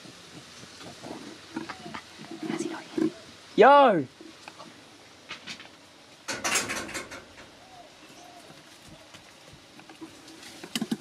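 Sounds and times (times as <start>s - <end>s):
leaves and stems rustling: 6.9s - 11.0s.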